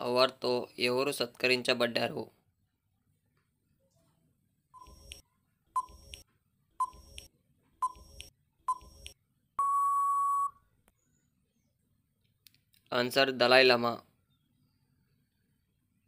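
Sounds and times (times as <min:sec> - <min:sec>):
long steady beep: 0:09.6 - 0:10.6
short beeps: 0:09.6 - 0:10.6.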